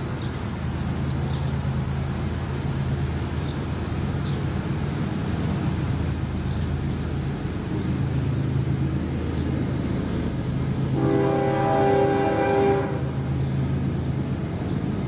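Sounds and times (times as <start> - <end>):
locomotive air horn: 10.9 - 13.2.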